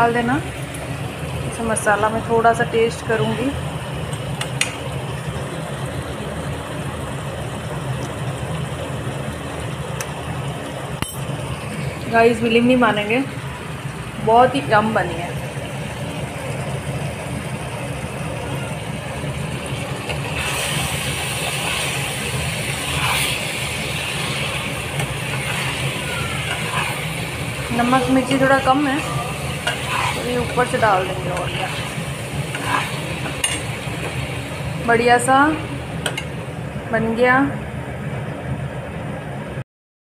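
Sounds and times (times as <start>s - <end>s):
food cooking in a pan: 0.0s - 37.4s
low machine hum: 0.0s - 39.6s
spatula scraping pan: 20.3s - 34.2s.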